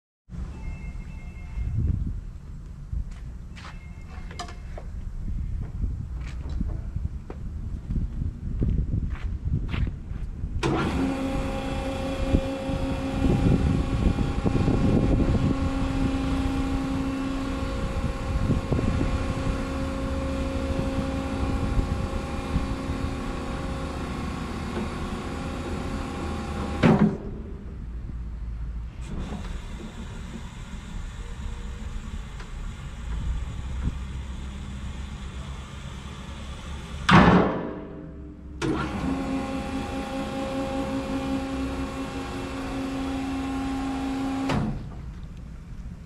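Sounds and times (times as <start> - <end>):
hydraulic motor and pump humming: 10.2 - 27.8, 28.9 - 46.0
lift motor shutting off thump: 10.6 - 27.4, 29.0 - 37.9, 38.6 - 45.1.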